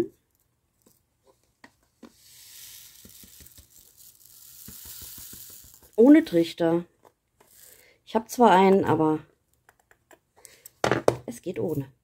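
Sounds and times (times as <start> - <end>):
small stones pouring into plastic jar: 2.2 - 6.4, 7.5 - 7.8.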